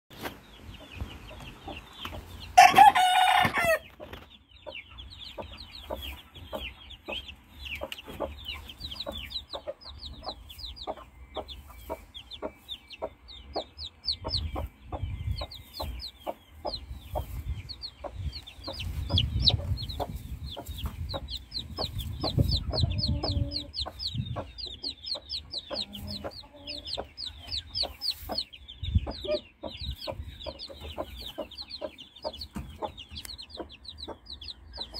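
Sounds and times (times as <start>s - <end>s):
chicks peeping: 0.1s - 34.9s
hen clucking: 0.7s - 34.9s
loud chicken call: 2.6s - 3.8s.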